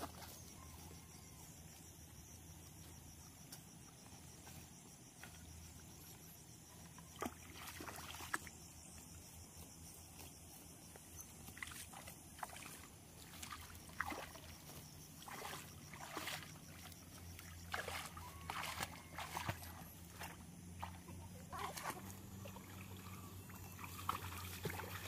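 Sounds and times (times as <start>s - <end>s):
water sloshing and splashing: 6.9s - 8.7s, 11.4s - 25.0s.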